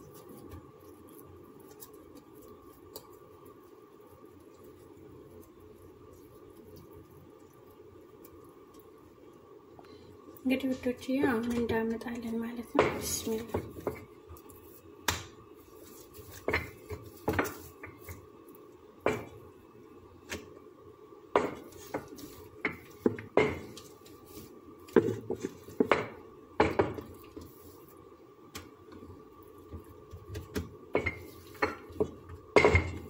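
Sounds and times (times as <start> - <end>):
rolling pin knocking on countertop: 24.9 - 27.1.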